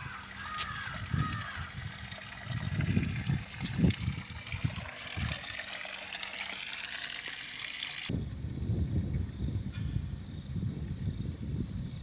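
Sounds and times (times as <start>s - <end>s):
water trickling into stone basin: 0.0s - 8.1s.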